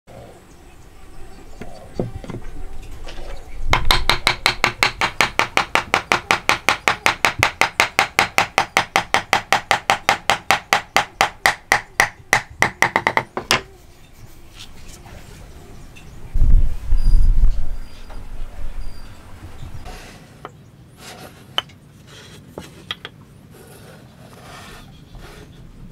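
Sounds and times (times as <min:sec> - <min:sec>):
hammer tapping on wood: 0:03.7 - 0:13.7.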